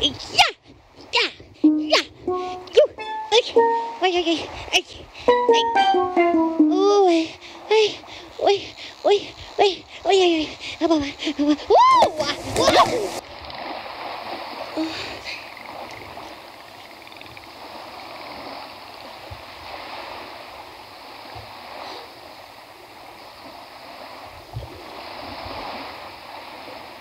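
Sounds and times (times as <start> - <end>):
surf over sound system: 11.8 - 13.2.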